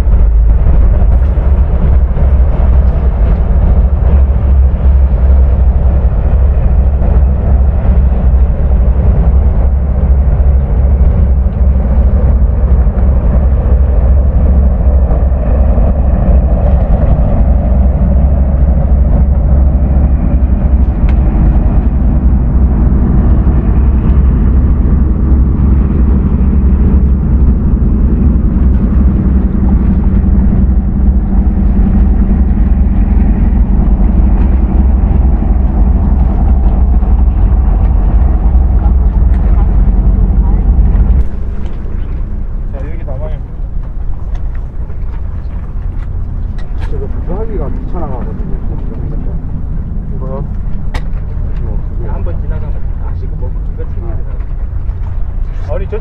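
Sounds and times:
faint hum: 0.0 - 56.0
loud low rumble: 0.0 - 56.0.

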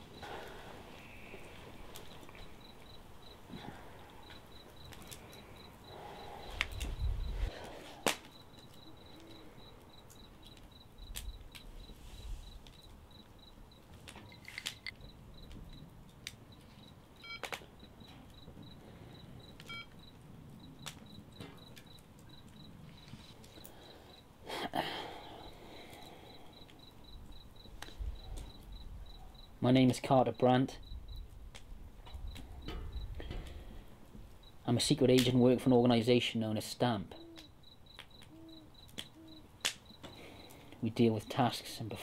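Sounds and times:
cricket chirping: 0.0 - 42.0
short electronic beeps: 19.4 - 20.8.

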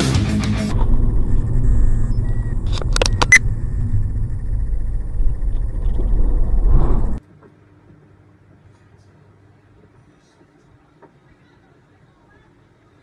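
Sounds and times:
road and engine rumble in car: 0.6 - 7.2
sharp clicks: 2.6 - 3.5.

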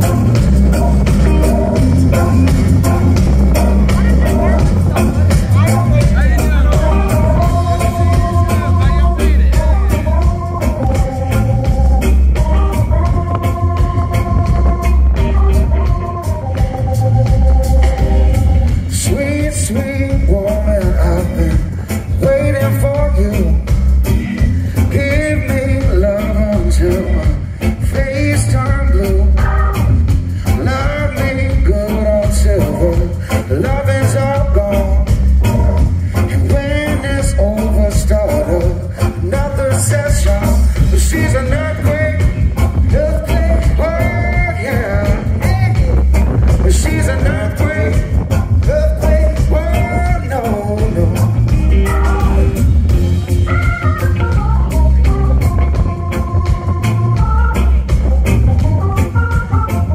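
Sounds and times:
drum kit: 0.0 - 59.9
electric guitar: 0.0 - 59.9
heavy bass: 0.0 - 59.9
keyboards: 0.0 - 59.9
lead singer: 0.0 - 59.9
live reggae band playing: 0.0 - 59.9.

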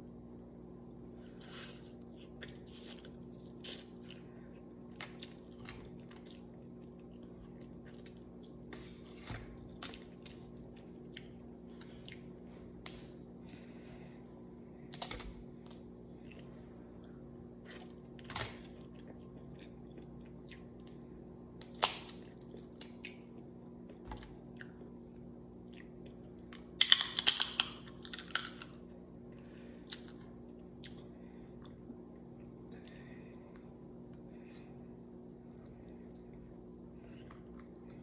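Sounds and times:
soft chewing: 0.3 - 14.2, 14.8 - 21.1, 22.1 - 26.8, 27.8 - 38.0
crab shells snapping: 26.8 - 28.8.

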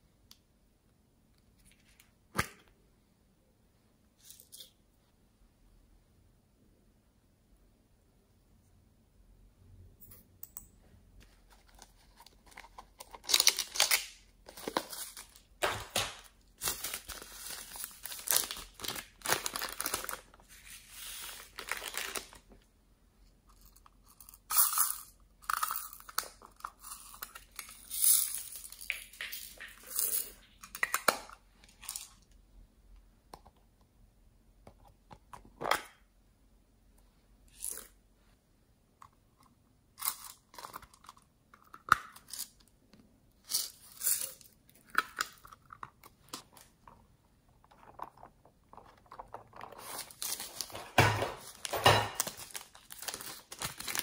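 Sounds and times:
plastic containers being handled: 11.2 - 22.6, 44.7 - 54.0.

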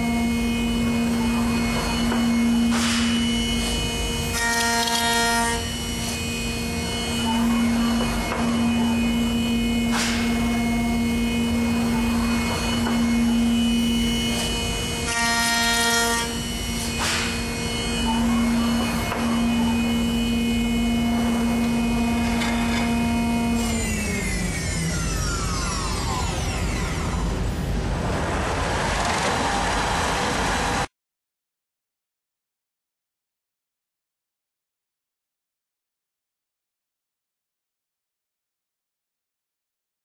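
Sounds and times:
router spindle whine: 0.0 - 30.9.

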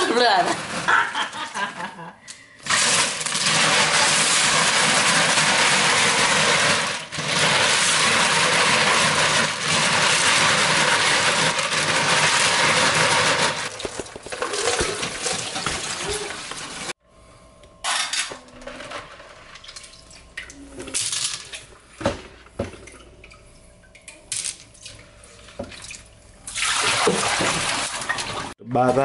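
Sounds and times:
faucet running into bucket: 26.5 - 28.5.

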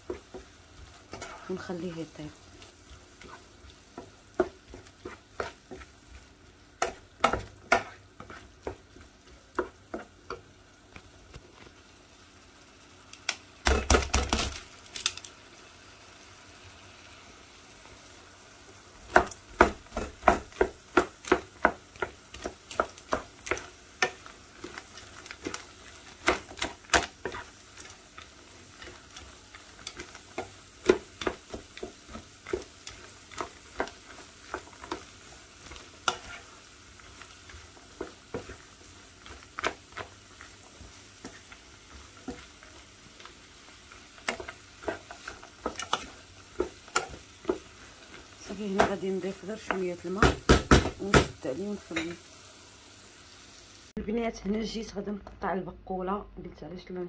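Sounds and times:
wooden spoon stirring in pan: 0.0 - 15.3, 16.0 - 53.5
faint sizzle: 0.0 - 57.0
beans rattling into pan: 14.3 - 15.4.

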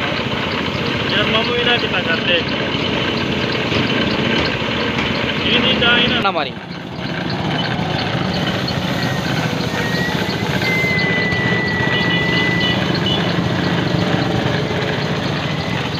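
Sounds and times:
engine idling with ticks: 0.0 - 15.9
thin high whistle: 8.4 - 14.3.

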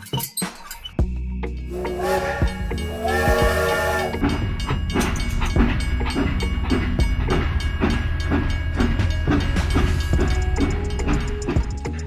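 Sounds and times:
toy train whistle: 1.7 - 4.2
toy train clickety-clack: 1.8 - 12.0.

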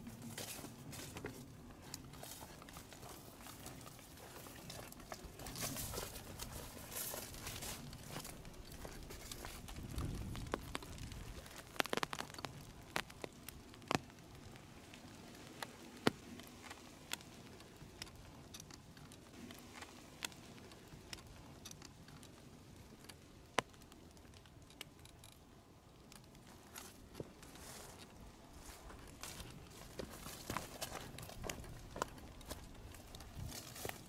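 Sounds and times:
footsteps on dry trail: 0.0 - 14.1, 26.4 - 34.0.

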